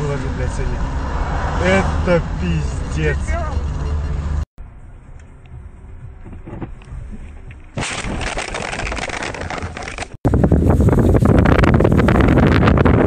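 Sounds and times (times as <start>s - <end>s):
road noise: 0.0s - 7.9s
crunching and rattling: 7.6s - 10.2s
wind buffeting microphone: 10.2s - 13.0s.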